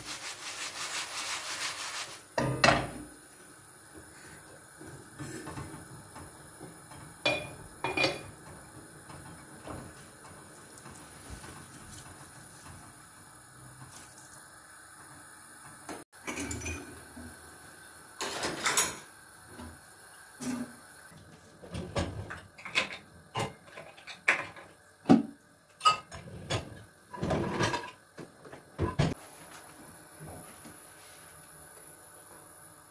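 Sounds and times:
dishes clinking and clattering: 0:06.9 - 0:10.0, 0:16.2 - 0:17.2, 0:18.2 - 0:19.1, 0:21.7 - 0:28.0, 0:28.8 - 0:29.2.

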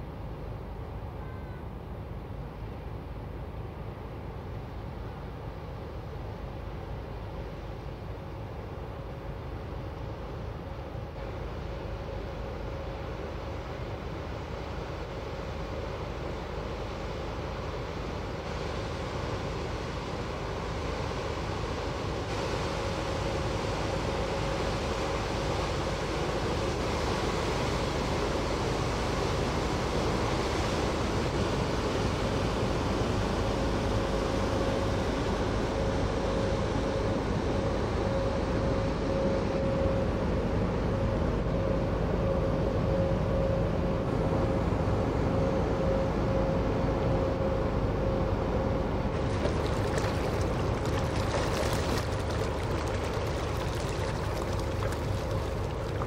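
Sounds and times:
ship machinery hum: 0:38.4 - 0:56.0
bow-wave water rushing: 0:48.9 - 0:56.0.

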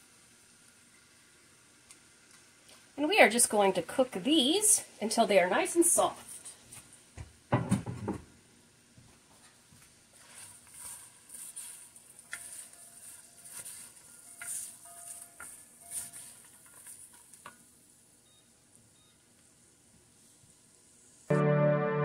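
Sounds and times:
vegetables sizzling in butter: 0:10.0 - 0:19.1
wooden spoon scraping pot: 0:10.1 - 0:17.5.

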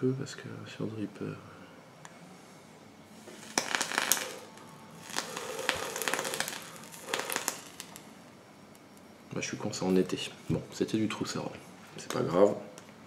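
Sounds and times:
breathy vapour draw and exhale: 0:03.2 - 0:08.0
vape coil crackling and sizzling: 0:03.2 - 0:08.3.

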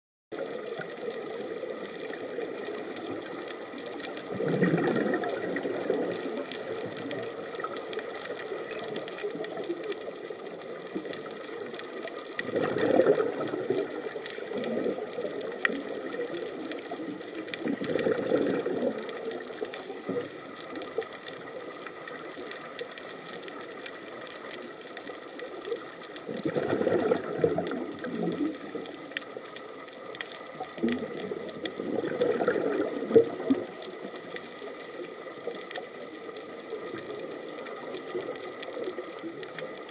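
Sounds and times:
scuba regulator bubbles: 0:00.3 - 0:39.9
snapping shrimp crackle: 0:00.6 - 0:39.9.

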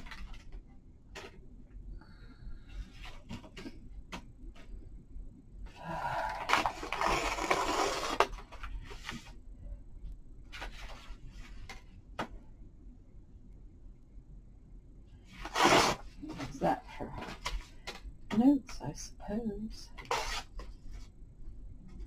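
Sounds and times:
paper ripping: 0:06.4 - 0:08.4, 0:15.4 - 0:16.5, 0:20.0 - 0:20.6.

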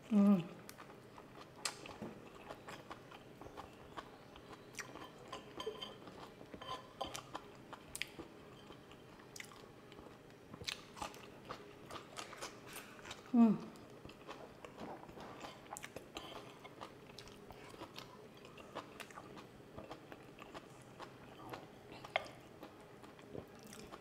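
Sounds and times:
person chewing food: 0:00.7 - 0:24.0.

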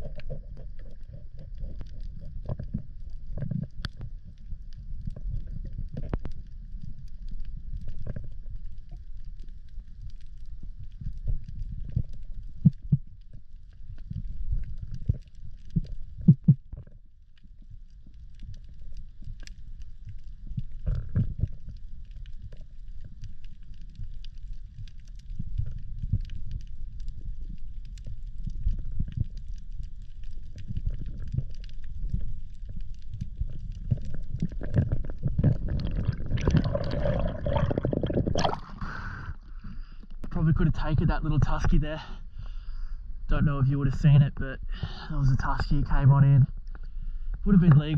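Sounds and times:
muffled underwater rumble: 0:00.0 - 0:47.9
rush of water: 0:35.4 - 0:39.2.

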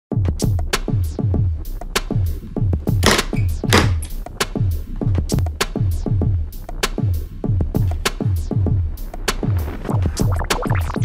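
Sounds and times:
drum machine kick beat: 0:00.1 - 0:11.0
electronic music: 0:07.9 - 0:11.0.

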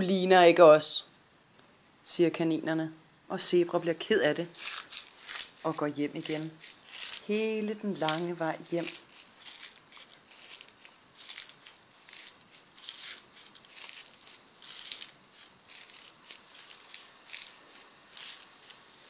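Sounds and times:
soft crunchy footsteps: 0:04.4 - 0:19.0.

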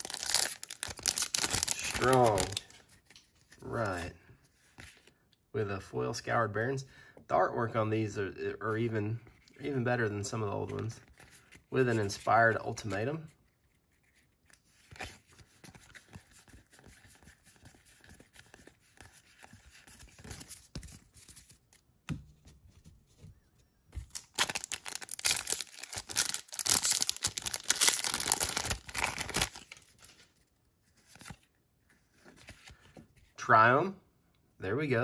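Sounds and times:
foil wrapper crinkling and tearing: 0:00.0 - 0:02.7, 0:24.0 - 0:30.3
cards rustling: 0:00.0 - 0:05.1, 0:09.2 - 0:21.8, 0:24.0 - 0:33.3.

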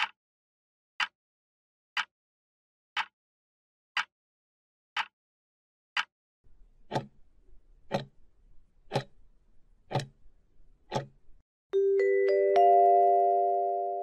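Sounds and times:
clock ticking: 0:06.0 - 0:11.4
rising four-note chime: 0:11.8 - 0:14.0.

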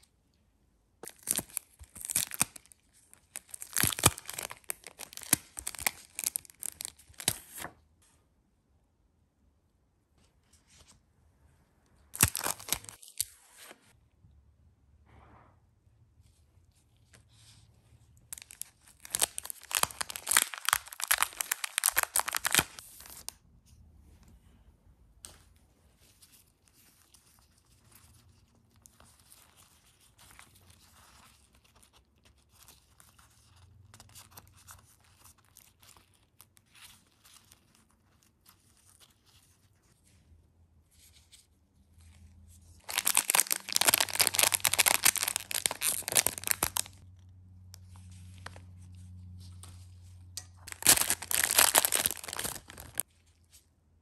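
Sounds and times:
plastic packaging crinkling: 0:01.0 - 0:07.7, 0:12.2 - 0:13.3, 0:18.3 - 0:23.3, 0:42.7 - 0:47.0, 0:50.6 - 0:53.3.

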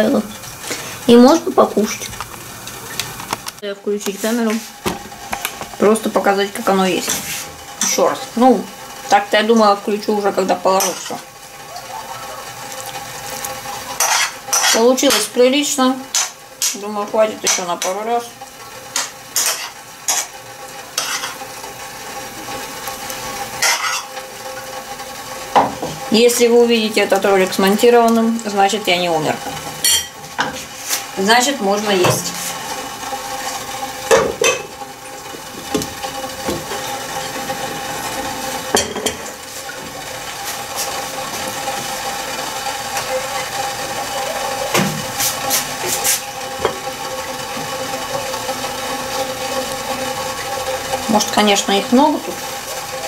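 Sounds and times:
kettle hissing on gas burner: 0:00.0 - 0:53.0
metal ladle scraping frying pan: 0:14.0 - 0:15.3, 0:19.0 - 0:20.4, 0:21.0 - 0:21.4, 0:23.6 - 0:24.1.

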